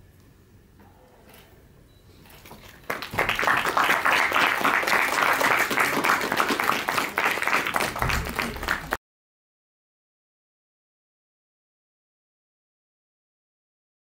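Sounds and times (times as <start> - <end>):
audience applauding: 2.6 - 9.0.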